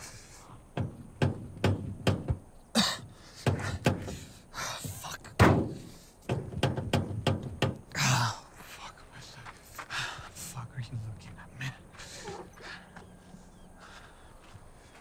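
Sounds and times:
thumps and knocks on car body: 0.8s - 2.5s, 3.4s - 4.2s, 4.8s - 7.8s.

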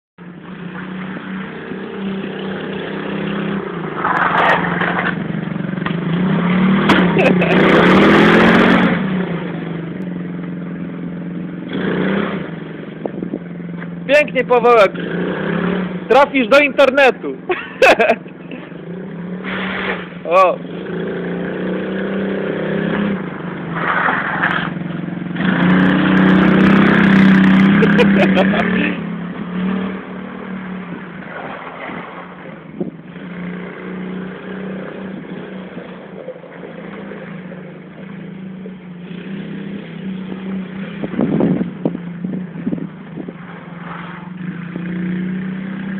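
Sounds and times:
small quad bike engine revving: 0.4s - 17.0s, 17.8s - 45.9s
quad bike engine running: 4.5s - 12.5s, 24.7s - 30.0s.

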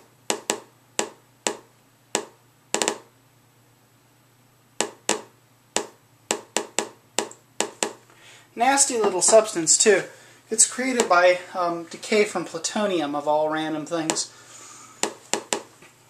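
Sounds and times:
geiger counter clicking: 0.2s - 3.1s, 4.8s - 8.0s.

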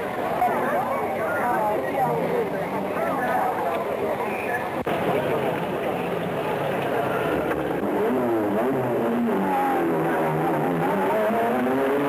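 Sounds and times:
racing car engines revving: 4.9s - 12.0s.

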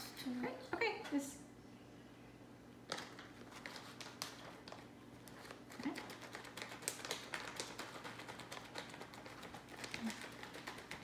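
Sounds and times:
plastic bag crinkling: 2.9s - 11.0s.

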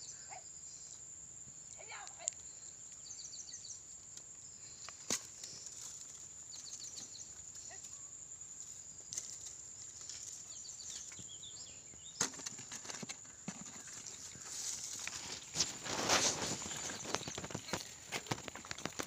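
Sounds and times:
rustling of dry reeds and grass: 4.6s - 7.8s, 8.5s - 11.4s, 12.2s - 19.0s.

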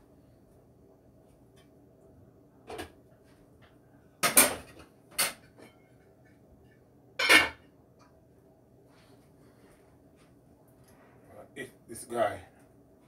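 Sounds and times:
dishes clinking: 7.2s - 7.7s
pots and dishes clattering: 7.2s - 7.7s.

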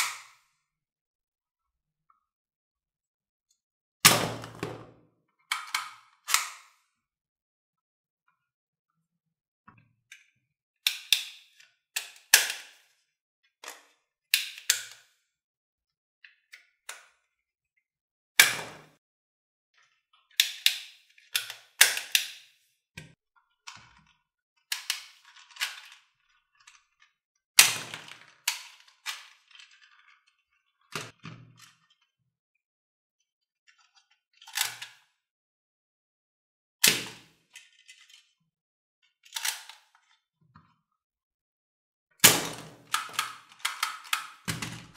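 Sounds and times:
plastic toy guns clicking: 5.5s - 6.8s, 10.8s - 12.8s, 14.3s - 15.1s, 20.4s - 22.5s, 24.7s - 26.0s, 39.2s - 40.2s, 42.2s - 44.9s.

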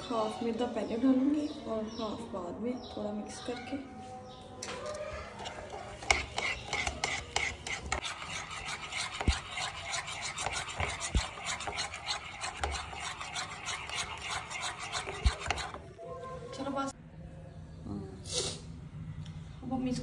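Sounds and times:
utensil scraping and knocking bowl: 4.8s - 15.9s.

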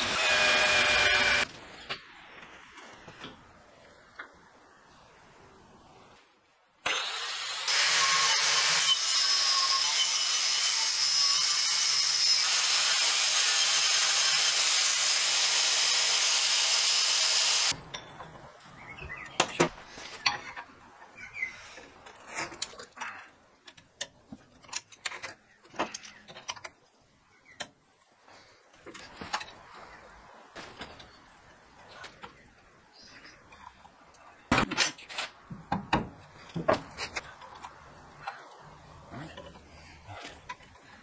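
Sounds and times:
power tool cutting steel: 0.0s - 1.5s, 6.8s - 17.7s.

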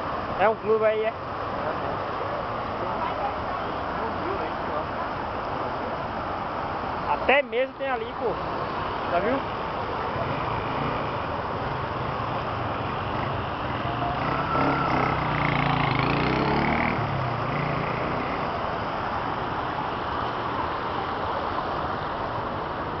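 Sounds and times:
rushing water: 0.0s - 23.0s
traffic noise: 0.0s - 23.0s
vehicle driving past: 10.1s - 18.7s.

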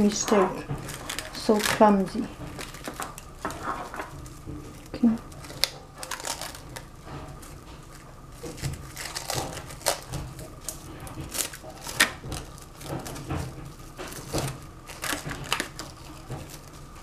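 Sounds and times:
plastic cling wrap crinkling: 0.0s - 17.0s.

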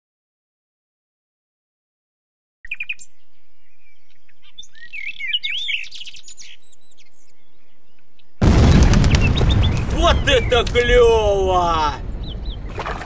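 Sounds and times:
songbirds singing: 2.6s - 11.3s, 12.0s - 13.0s.

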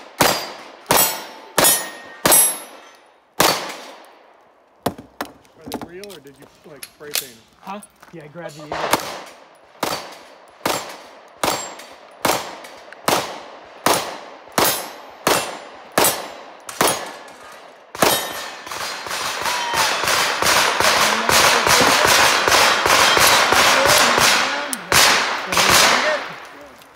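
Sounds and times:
sharp crackling noise: 5.4s - 26.9s
handgun shots with echo: 20.0s - 26.5s.

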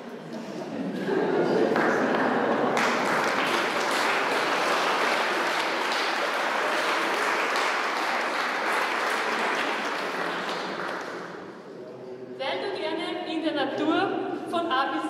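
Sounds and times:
crowd applauding: 1.4s - 11.6s.

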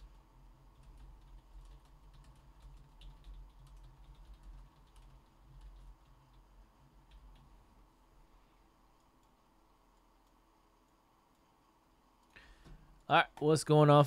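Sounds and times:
typing on keyboard: 0.0s - 7.5s
low steady hum: 0.0s - 14.0s.

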